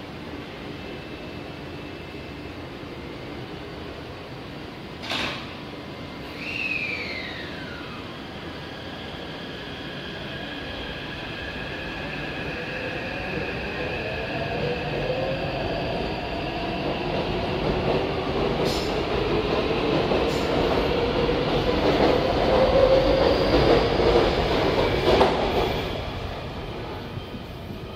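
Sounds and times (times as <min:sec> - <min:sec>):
train wheels on rails: 0:13.3 - 0:27.9.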